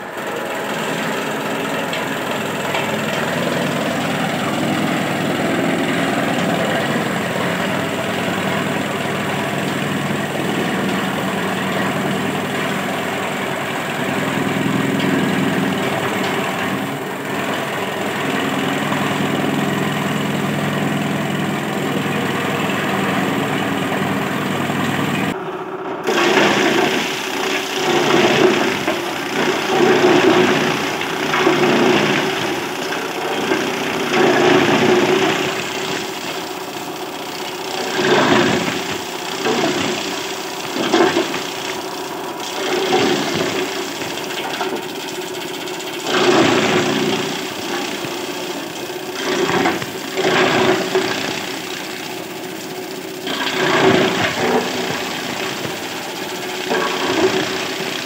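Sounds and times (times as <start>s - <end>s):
chaff cutter motor hum: 0.0s - 58.0s
blades chopping fodder stalks: 26.0s - 58.0s.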